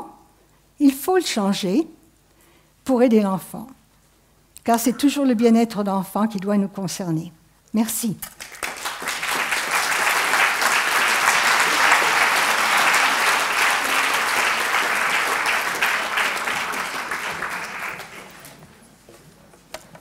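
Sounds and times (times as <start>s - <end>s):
audience applauding: 8.3s - 18.6s.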